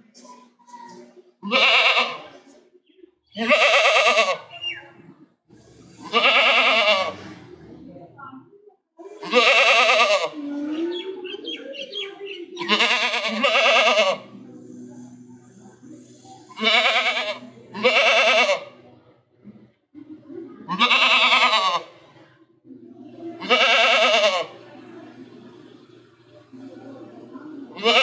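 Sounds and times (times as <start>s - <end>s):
goat bleating: 1.4s - 2.3s, 3.4s - 4.7s, 6.0s - 7.2s, 9.2s - 10.4s, 12.6s - 14.3s, 16.5s - 18.8s, 20.7s - 22.0s, 23.4s - 24.6s, 27.8s - 28.0s.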